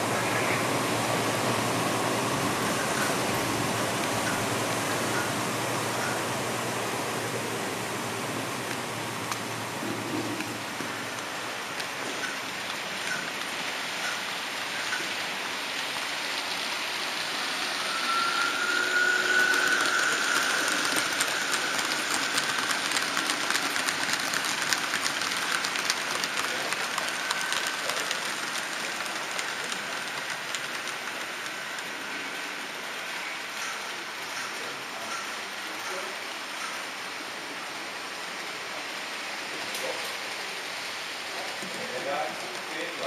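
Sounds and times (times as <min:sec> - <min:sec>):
model train wheels on rails: 0:00.0 - 0:43.0
model locomotive motor whine: 0:15.9 - 0:33.8.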